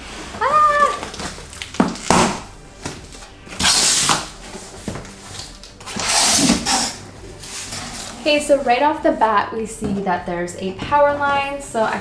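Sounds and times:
tape flaps tearing and scraping: 0.8s - 8.3s
rasping cardboard tears: 3.6s - 4.3s, 5.3s - 7.0s.

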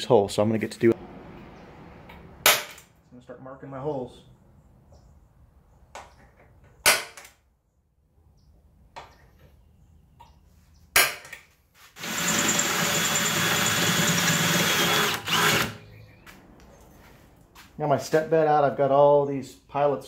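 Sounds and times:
sharp metallic impacts: 1.0s - 3.0s
cordless drill drilling metal: 12.0s - 15.8s.

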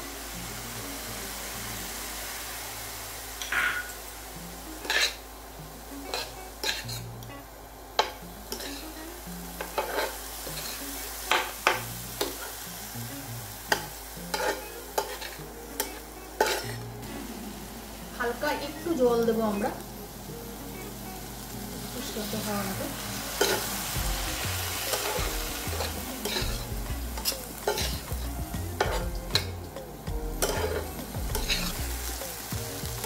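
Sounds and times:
vegetables sizzling in a pan: 0.0s - 33.0s
spatula scraping and tapping pan: 4.8s - 5.2s, 9.6s - 12.5s.

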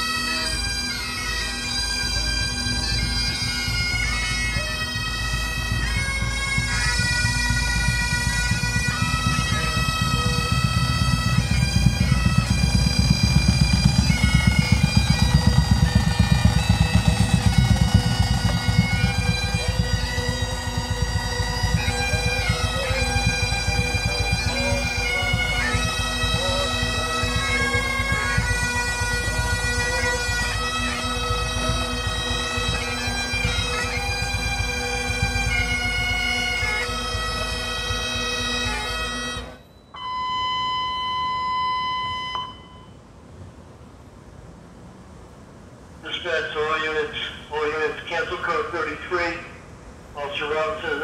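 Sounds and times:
bagpipes playing slow tune: 0.0s - 43.1s
steady high tone: 1.0s - 43.1s.

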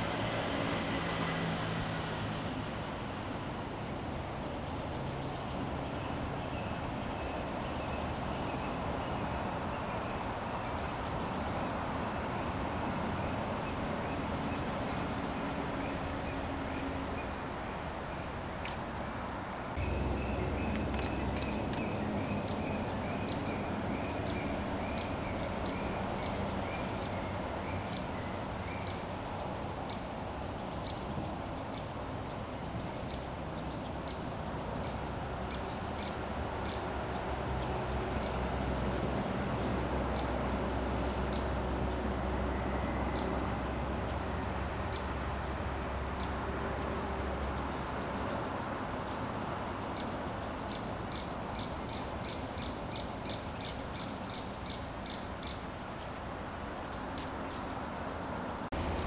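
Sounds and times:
low rumble and hiss: 0.0s - 59.0s
lower repeated bird notes: 19.8s - 38.5s
small birds chirping: 19.8s - 38.5s, 45.9s - 59.0s.

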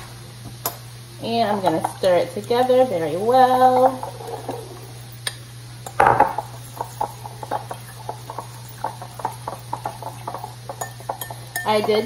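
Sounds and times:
fork clinking in bowl: 8.3s - 12.0s.

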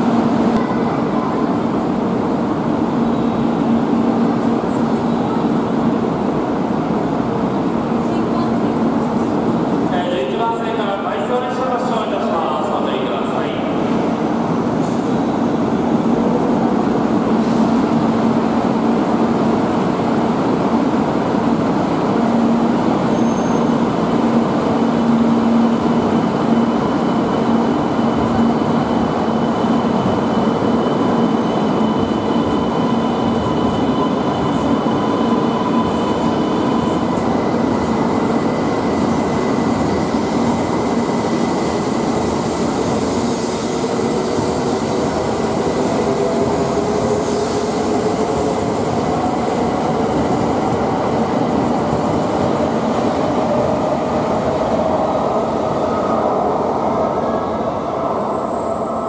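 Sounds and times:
train running past: 0.0s - 59.0s.

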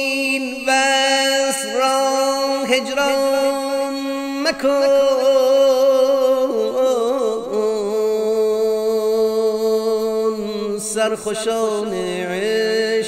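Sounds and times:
man singing solo: 0.0s - 13.0s.

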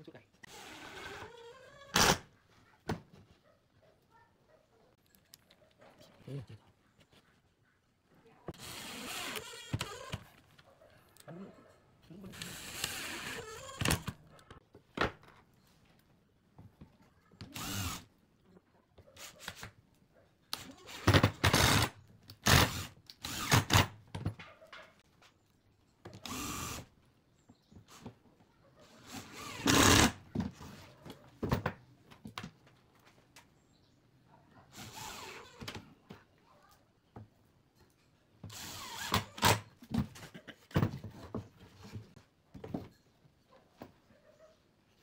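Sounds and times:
impact driver driving screws: 1.9s - 2.2s, 17.5s - 18.1s, 21.0s - 23.9s, 29.1s - 30.2s, 38.5s - 39.7s.

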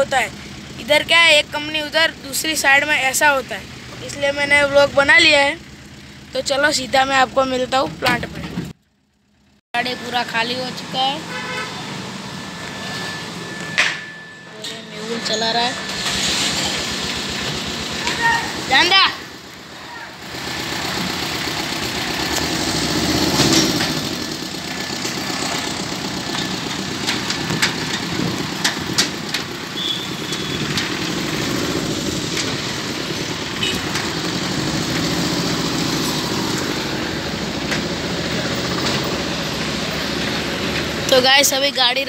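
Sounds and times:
road noise: 0.0s - 42.0s
truck engine running: 0.0s - 42.0s
sharp clicks or rattles: 23.3s - 35.2s.

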